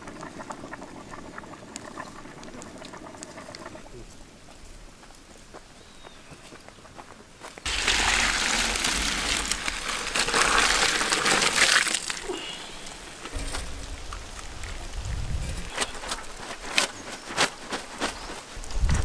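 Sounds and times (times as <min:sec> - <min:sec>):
water gushing from a pot: 0:00.0 - 0:03.9, 0:07.7 - 0:16.8
water splashing over noodles: 0:07.7 - 0:15.0.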